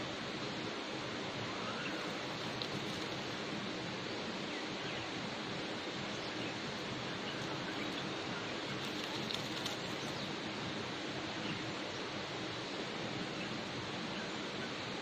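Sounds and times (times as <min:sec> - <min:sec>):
outdoor background hiss: 0:00.0 - 0:15.0
small birds chirping: 0:05.8 - 0:10.5.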